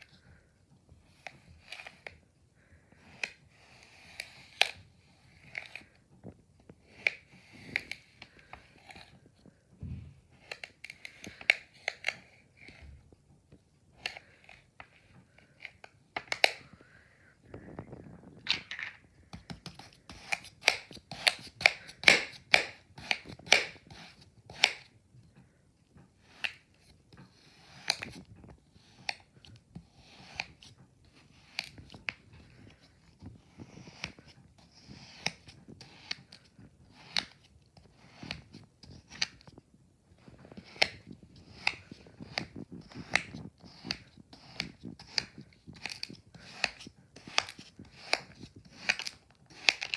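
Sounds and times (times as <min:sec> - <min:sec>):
knife slicing kinetic sand: 0:01.2 - 0:02.1, 0:03.0 - 0:05.8, 0:19.5 - 0:24.9, 0:26.2 - 0:26.6, 0:27.3 - 0:28.1, 0:28.8 - 0:32.1, 0:33.6 - 0:39.4, 0:40.5 - 0:49.9.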